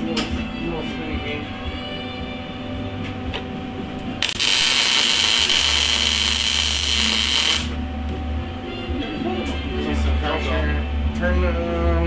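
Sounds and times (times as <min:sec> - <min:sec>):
welding arc hissing: 0:04.2 - 0:07.8.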